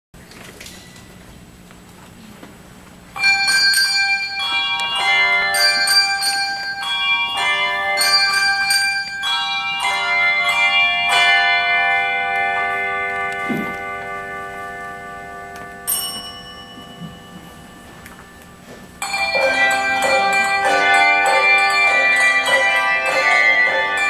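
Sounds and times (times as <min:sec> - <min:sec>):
handbells ringing chords: 0:03.2 - 0:24.0.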